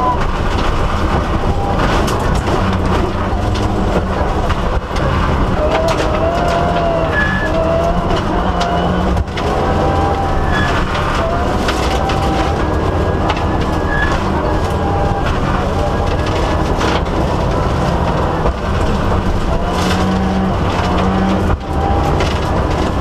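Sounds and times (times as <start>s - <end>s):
gravel clattering against car: 0.0s - 23.0s
rally car engine whining: 0.0s - 23.0s.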